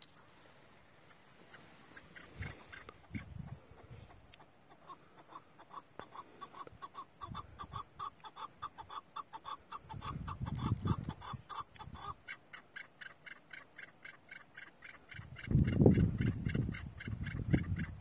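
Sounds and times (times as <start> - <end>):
partridge clucking calls: 1.0 - 18.0.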